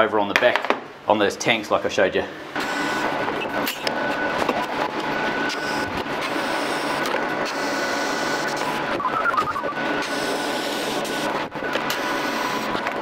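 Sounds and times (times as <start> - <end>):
constant high whine: 1.7 - 13.0
welding arc buzzing hiss: 5.5 - 12.8.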